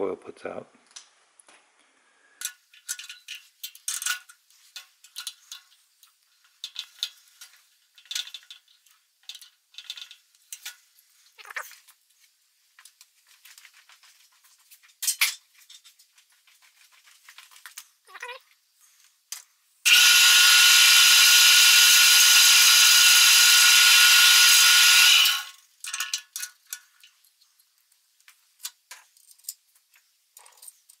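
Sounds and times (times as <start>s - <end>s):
metal tools clinking: 2.4s - 5.8s, 14.8s - 16.0s.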